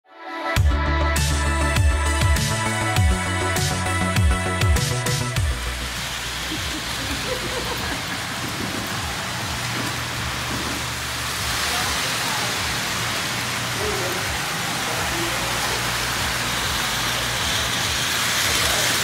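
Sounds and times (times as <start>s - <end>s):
model train wheels rolling on track: 5.8s - 19.0s.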